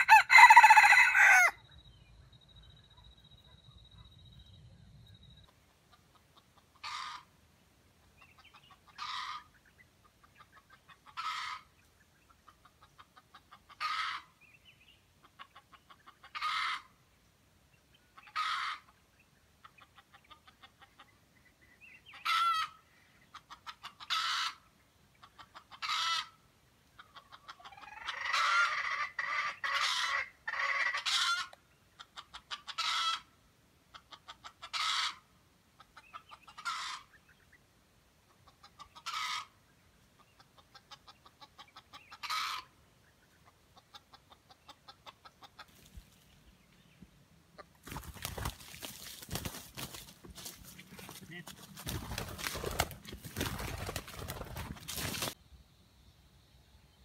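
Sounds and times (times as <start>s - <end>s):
rooster crowing: 0.0s - 1.6s.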